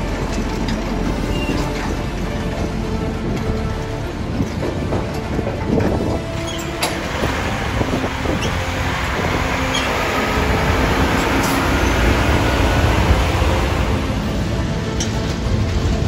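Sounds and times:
diesel truck engine rumbling: 0.0s - 16.0s.

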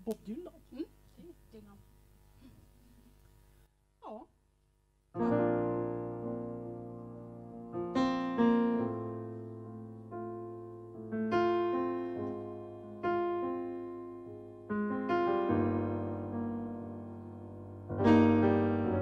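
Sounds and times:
slow piano ballad chords: 5.2s - 19.0s.

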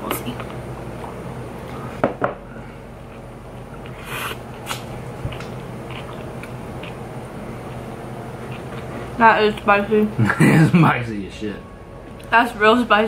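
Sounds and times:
person chewing food: 3.0s - 9.2s.

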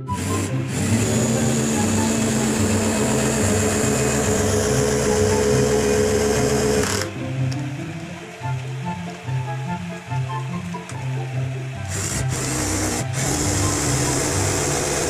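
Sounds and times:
cordless drill boring wood: 0.0s - 7.3s, 11.8s - 15.0s.

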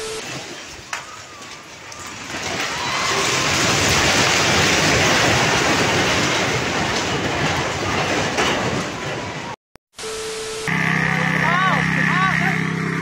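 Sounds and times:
falling concrete and brick rubble: 0.2s - 9.6s
building collapsing rumble: 0.3s - 9.6s.

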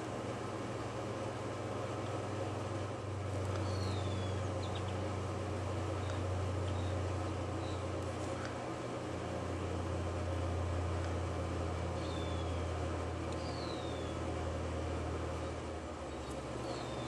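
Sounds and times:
low machine hum with hiss: 0.0s - 17.0s
faint bird chirps: 3.6s - 5.0s, 12.0s - 12.7s, 13.4s - 14.2s, 16.1s - 17.0s.

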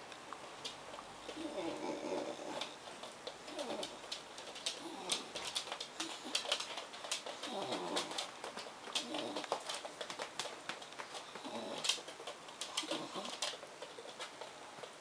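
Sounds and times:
claws clicking on tiles: 0.6s - 15.0s
dog cooing grumble: 1.4s - 2.8s, 3.5s - 4.0s, 4.8s - 5.4s, 7.4s - 8.3s, 9.0s - 9.6s, 11.4s - 12.0s, 12.8s - 13.5s.

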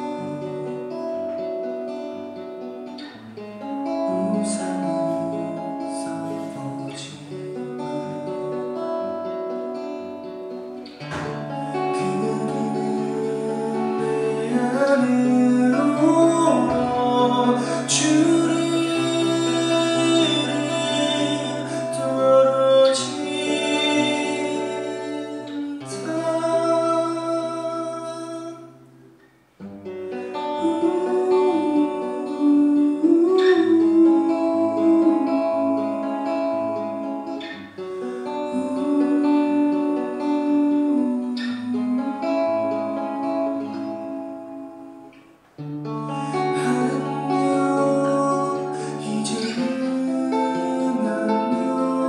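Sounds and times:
keyboard accompaniment: 0.0s - 29.1s
man singing: 3.9s - 7.9s, 11.1s - 28.9s, 30.1s - 37.4s, 38.2s - 44.2s, 46.0s - 52.0s.

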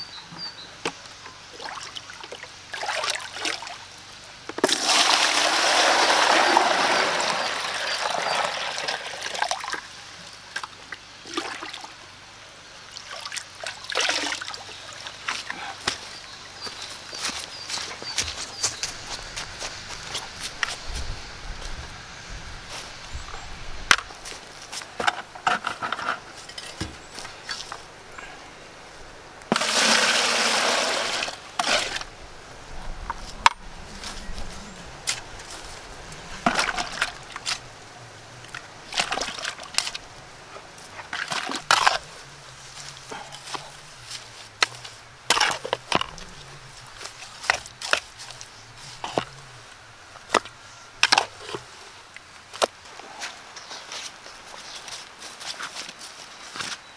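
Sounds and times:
water splashing into bucket: 1.6s - 3.7s, 4.6s - 9.8s, 29.5s - 32.0s, 36.4s - 37.6s, 38.9s - 40.0s
shovel scraping soil: 24.2s - 27.8s, 29.5s - 32.1s, 40.9s - 42.1s, 43.1s - 49.3s.

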